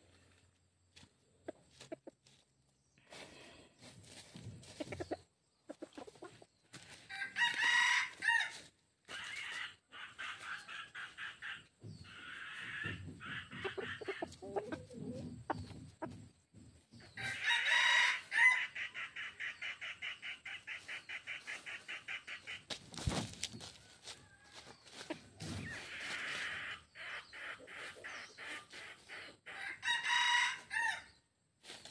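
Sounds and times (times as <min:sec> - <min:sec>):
chicken clucking: 0:00.1 - 0:31.1
rooster crowing: 0:07.1 - 0:08.7, 0:17.2 - 0:18.6, 0:23.9 - 0:24.7, 0:29.6 - 0:31.1.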